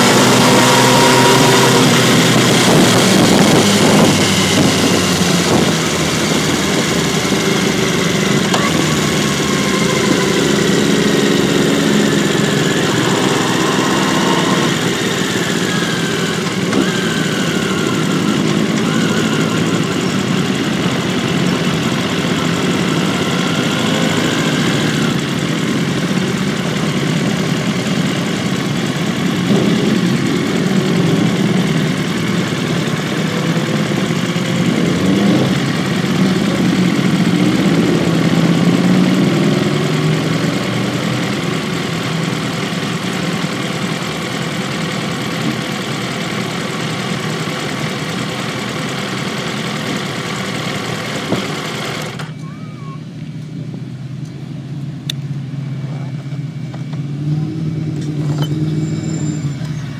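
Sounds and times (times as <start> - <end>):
motorcycle engine running: 0.0 - 59.9
wind noise on microphone: 1.8 - 7.8.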